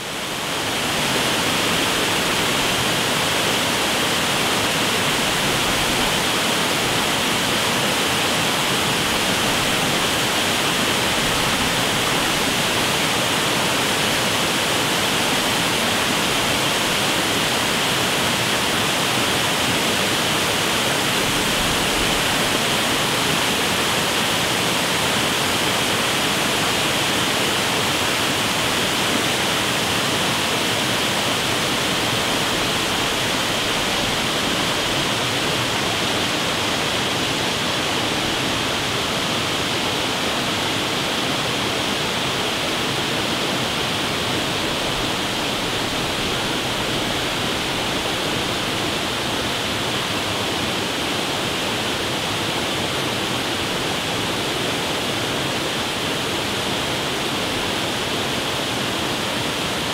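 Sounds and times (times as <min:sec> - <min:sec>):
waterfall rushing: 0:00.0 - 0:59.9.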